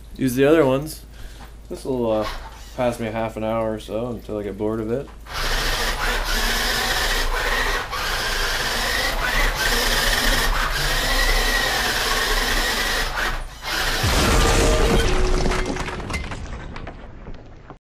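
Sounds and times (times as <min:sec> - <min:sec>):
toy car electric motor whine: 0:05.3 - 0:14.0.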